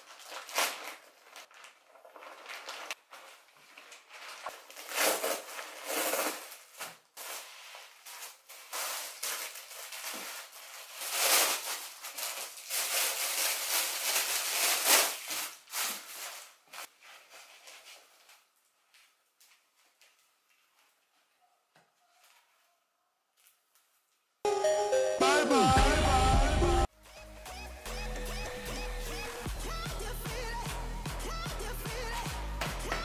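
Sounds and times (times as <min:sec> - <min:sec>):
plastic bag tearing: 0:00.0 - 0:17.8
plastic packaging crinkling: 0:00.0 - 0:21.0.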